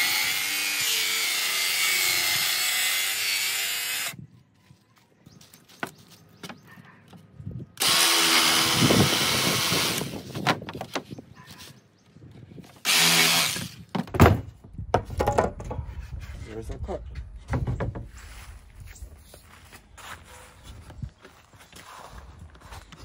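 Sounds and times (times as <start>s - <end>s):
power tool motor whine: 7.8s - 10.2s, 12.8s - 13.8s.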